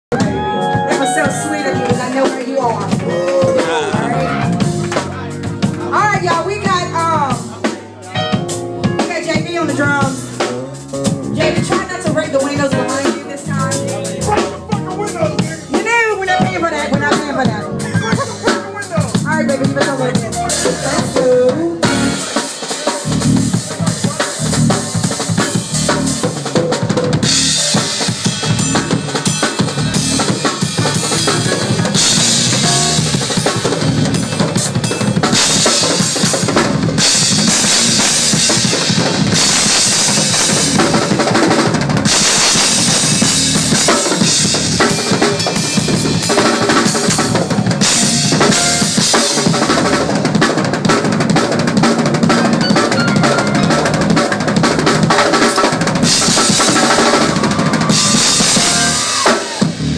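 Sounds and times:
bass drum: 0:00.1 - 0:07.6, 0:08.4 - 0:22.3, 0:23.0 - 0:59.9
snare drum: 0:35.4 - 0:59.7.

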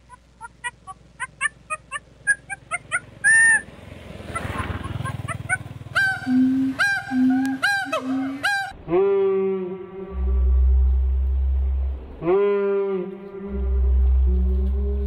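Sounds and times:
low steady hoot: 0:00.0 - 0:03.7, 0:04.3 - 0:15.0
repeated falling animal calls: 0:00.0 - 0:03.7, 0:04.3 - 0:15.0
animal clucking: 0:00.0 - 0:08.8.

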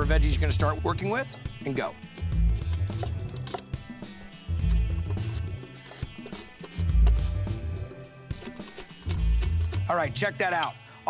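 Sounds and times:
bass line: 0:00.0 - 0:01.0, 0:02.3 - 0:03.4, 0:04.5 - 0:05.6
drum beat: 0:01.6 - 0:10.2.

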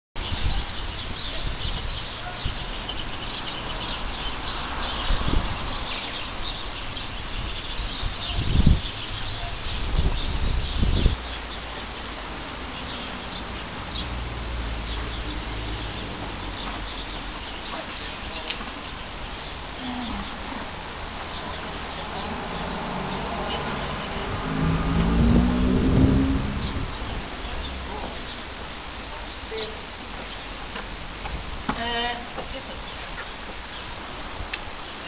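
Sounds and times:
wind noise on microphone: 0:00.2 - 0:11.2, 0:20.3 - 0:28.0
birds chirping: 0:00.2 - 0:35.0.

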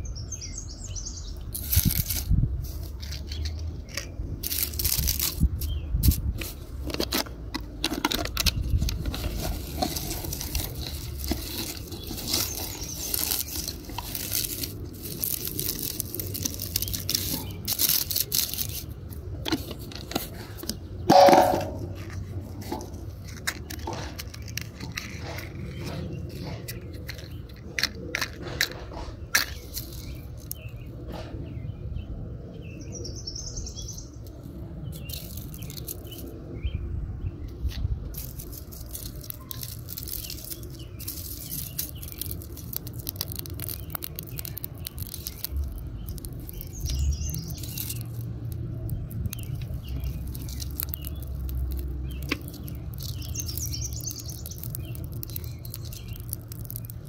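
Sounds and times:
birds chirping: 0:00.0 - 0:01.6, 0:08.1 - 0:57.0
kindling fire crackling: 0:09.1 - 0:20.6, 0:38.1 - 0:57.0.

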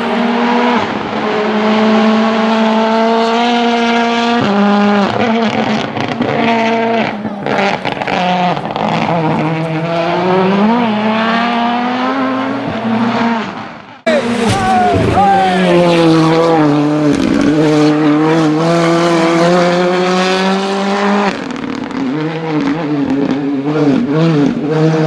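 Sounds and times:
rally car engine revving hard: 0:00.0 - 0:25.0.

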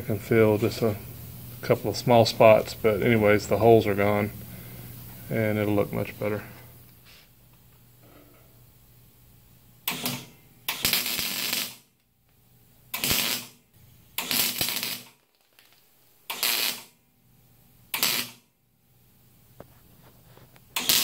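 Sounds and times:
welder spot welding bursts: 0:09.8 - 0:11.9, 0:12.9 - 0:15.4, 0:16.2 - 0:17.0, 0:17.9 - 0:18.5, 0:20.8 - 0:21.0.

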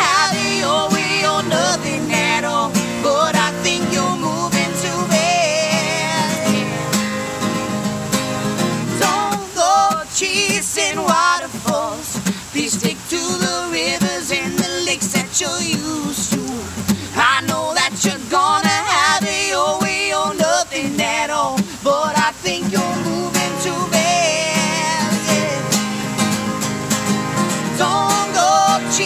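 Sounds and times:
man and woman singing: 0:00.0 - 0:07.2, 0:08.9 - 0:26.3, 0:27.5 - 0:29.0
instrumental accompaniment: 0:25.2 - 0:28.9.

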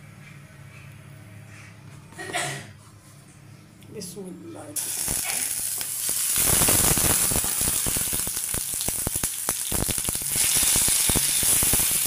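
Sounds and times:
onion sizzling in frying pan: 0:04.8 - 0:12.0.

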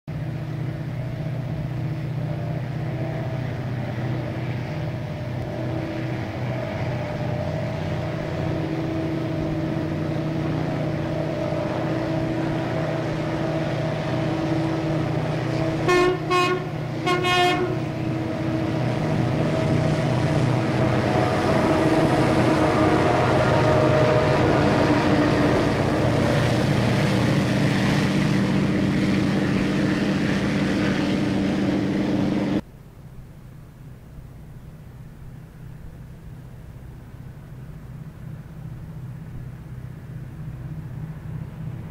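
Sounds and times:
diesel locomotive engine drone: 0:00.1 - 0:41.9
train horn blasts: 0:04.6 - 0:27.1.

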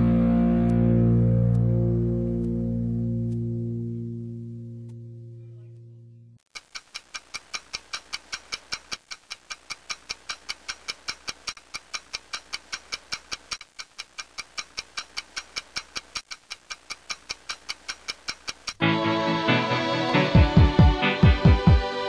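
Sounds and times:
rapid clock-like ticking: 0:06.5 - 0:18.8.

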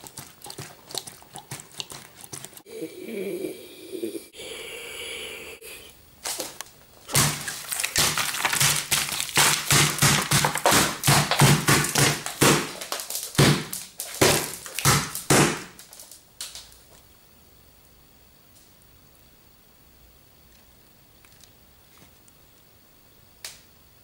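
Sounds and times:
wet slaps and thuds: 0:07.1 - 0:16.6.

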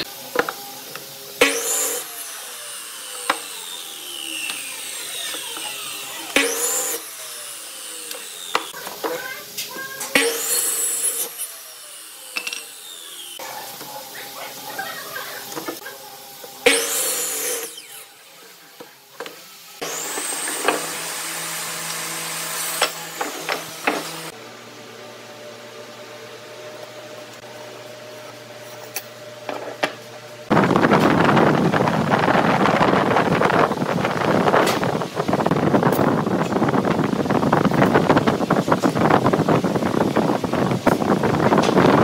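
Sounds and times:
miter saw cutting wood: 0:00.0 - 0:15.9, 0:16.5 - 0:18.7, 0:19.4 - 0:24.4
saw blade spinning down: 0:01.4 - 0:08.8, 0:10.1 - 0:13.7, 0:16.6 - 0:18.2
steady machine hum: 0:19.6 - 0:42.0.

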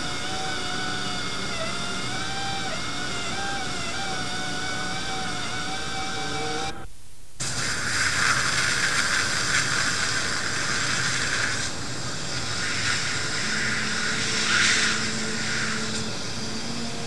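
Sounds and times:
dental suction hiss: 0:07.4 - 0:16.6.

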